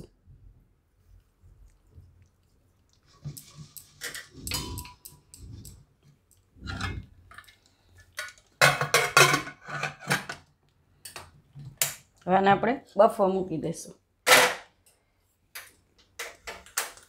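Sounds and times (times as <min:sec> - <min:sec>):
metal pot scraping and rattling: 0:03.1 - 0:05.9, 0:06.6 - 0:07.6, 0:08.2 - 0:10.4.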